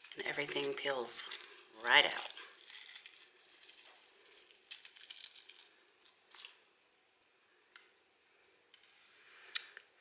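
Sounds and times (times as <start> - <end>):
eggshell crackling as peeled: 0.0 - 6.7.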